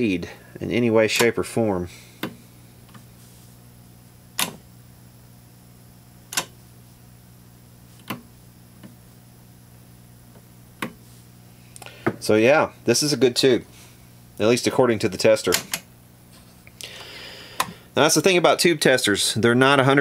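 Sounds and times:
low electrical hum: 0:00.0 - 0:20.0
switch and button clicks: 0:04.4 - 0:04.6, 0:06.3 - 0:06.5.

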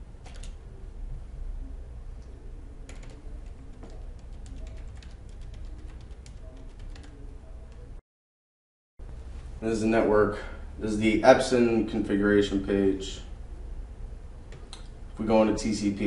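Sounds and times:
low steady hum: 0:00.0 - 0:08.0, 0:09.0 - 0:16.0
keyboard keys clicking: 0:00.2 - 0:00.6, 0:02.9 - 0:07.9.

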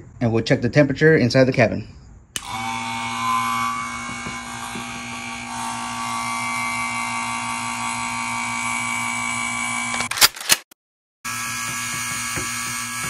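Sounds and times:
vacuum pump humming: 0:02.4 - 0:10.1, 0:11.3 - 0:13.0.

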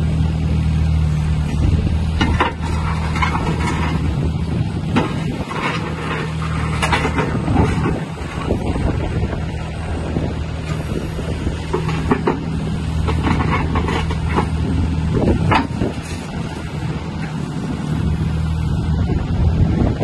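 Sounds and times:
excavator diesel engine under load: 0:00.0 - 0:20.0
metal clanks: 0:02.1 - 0:04.2, 0:04.9 - 0:09.0, 0:11.6 - 0:16.6.

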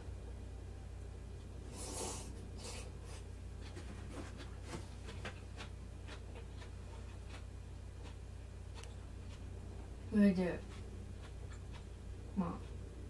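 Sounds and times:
person slurping soup: 0:01.7 - 0:02.9
person chewing: 0:01.7 - 0:09.8, 0:10.6 - 0:13.0.

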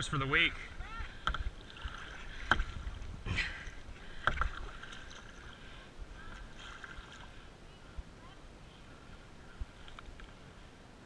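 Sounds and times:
paddle splashing in water: 0:00.0 - 0:07.5.

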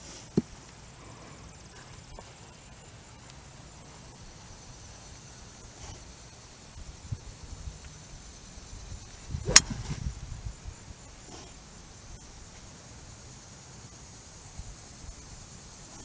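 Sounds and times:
insects humming: 0:00.0 - 0:16.0
golf club striking ball: 0:09.4 - 0:09.9.

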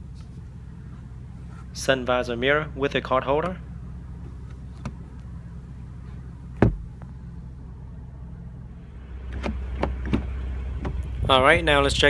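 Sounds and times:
low cabin hum: 0:00.0 - 0:12.0
sun visor snapping shut: 0:04.3 - 0:05.3, 0:06.2 - 0:07.2, 0:09.3 - 0:11.1.

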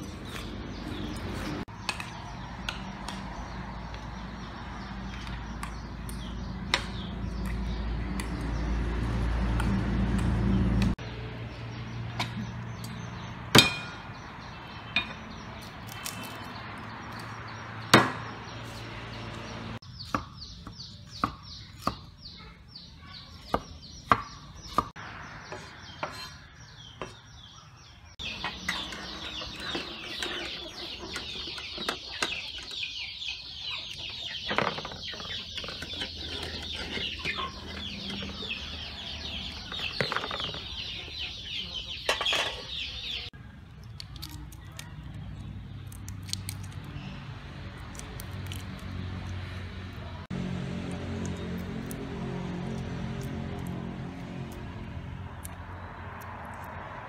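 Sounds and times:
chickens clucking and chirping: 0:17.1 - 0:43.4
cleaver chopping on wooden board: 0:17.9 - 0:18.3.

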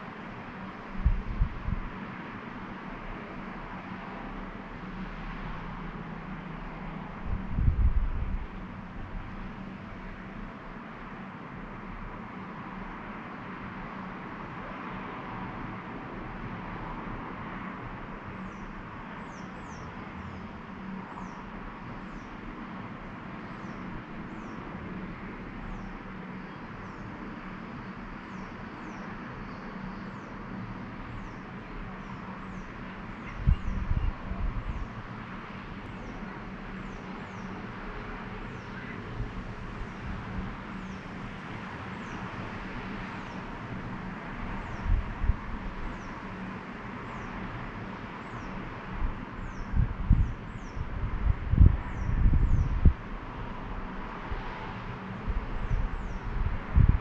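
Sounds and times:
distant road traffic hum: 0:00.0 - 0:57.0
wind buffeting microphone: 0:00.8 - 0:02.2, 0:06.9 - 0:09.6, 0:32.0 - 0:35.2, 0:39.0 - 0:47.3, 0:48.3 - 0:57.0.

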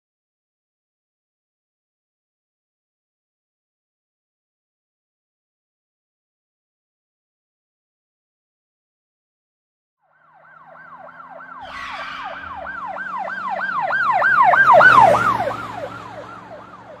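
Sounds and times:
police siren yelping: 0:10.1 - 0:17.0
engine hum: 0:10.4 - 0:17.0.

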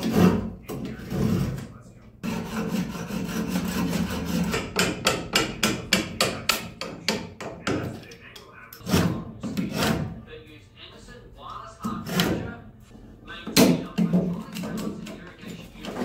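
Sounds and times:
hand tool scraping wood: 0:00.0 - 0:05.2, 0:08.8 - 0:10.2, 0:11.9 - 0:12.5.

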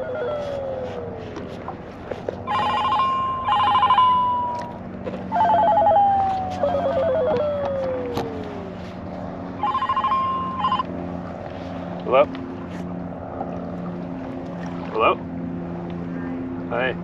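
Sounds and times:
mobile phone ringtone: 0:02.5 - 0:04.7, 0:05.3 - 0:07.4, 0:09.6 - 0:10.9.

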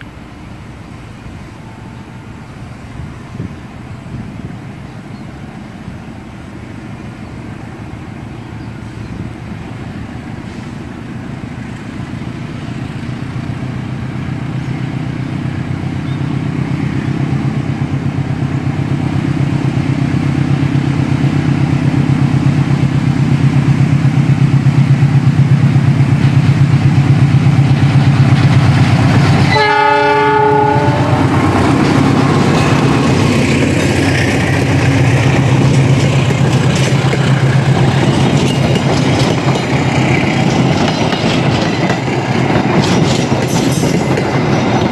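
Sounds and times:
locomotive engine hum: 0:00.0 - 0:44.9
train wheels on rails: 0:00.0 - 0:44.9
train horn blast: 0:29.4 - 0:31.6.

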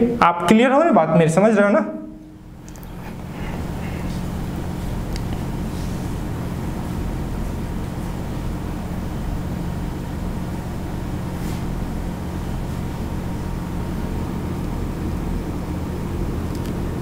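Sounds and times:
low hum: 0:01.9 - 0:17.0.

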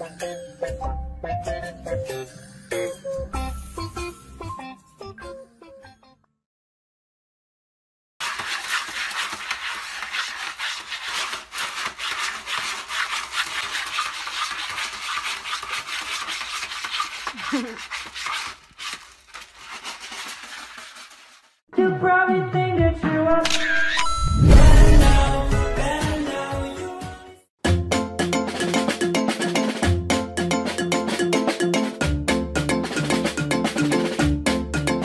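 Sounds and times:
cat scratching in litter tray: 0:08.2 - 0:21.6.

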